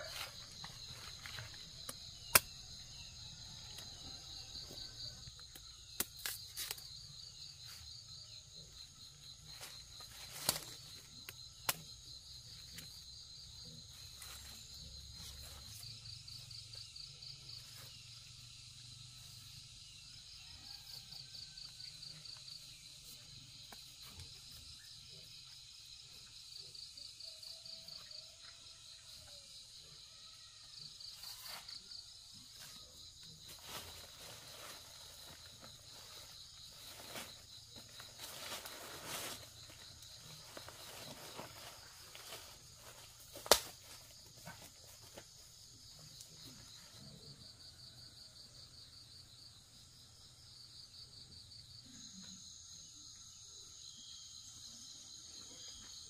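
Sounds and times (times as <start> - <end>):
insects droning and chirping: 0.0 - 56.0
sharp knocks of bananas cut: 43.4 - 43.8.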